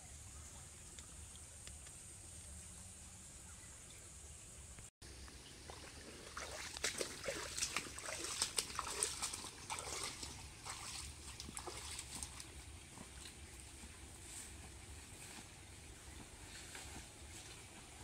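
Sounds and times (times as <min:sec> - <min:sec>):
footsteps splashing in stream: 0:05.6 - 0:14.9.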